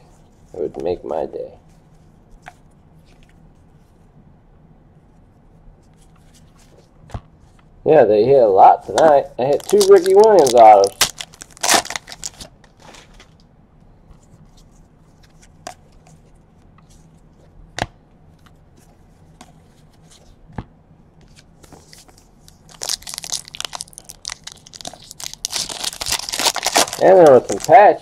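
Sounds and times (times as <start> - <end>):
foil wrapper crinkling and tearing: 8.9 - 13.2, 22.5 - 28.0.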